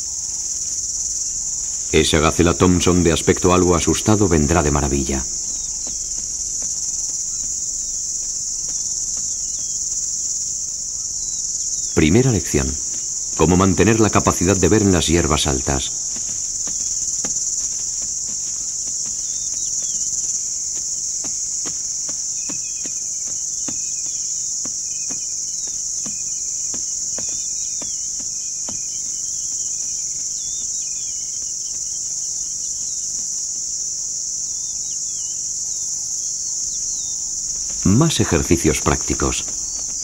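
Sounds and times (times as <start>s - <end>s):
insects trilling: 0.0s - 40.0s
bird chirping: 1.5s - 8.0s
faint ticks: 5.2s - 10.4s.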